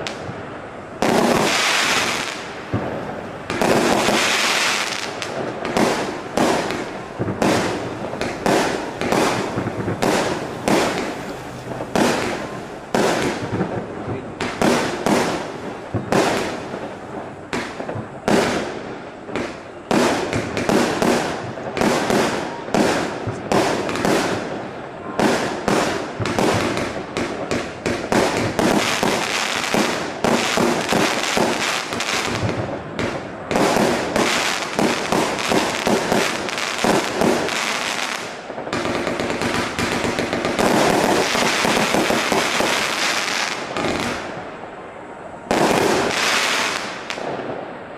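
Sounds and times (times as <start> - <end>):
firework shells bursting: 1.0 - 22.1, 25.4 - 44.4.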